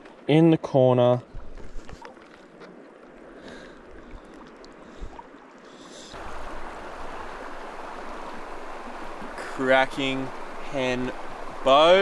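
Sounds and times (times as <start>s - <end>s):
faint ticks and splashes: 1.1s - 12.0s
river water rushing: 2.7s - 12.0s.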